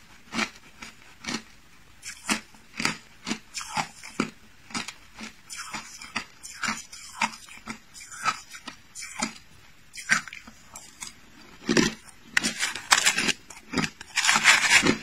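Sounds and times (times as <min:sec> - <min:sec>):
ice crunched between teeth: 0:11.6 - 0:15.0.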